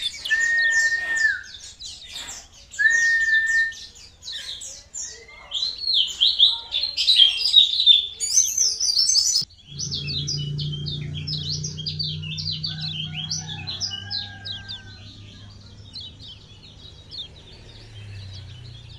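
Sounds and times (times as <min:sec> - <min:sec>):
small bird chirping: 0:04.1 - 0:18.9
steady low hum: 0:09.5 - 0:18.9.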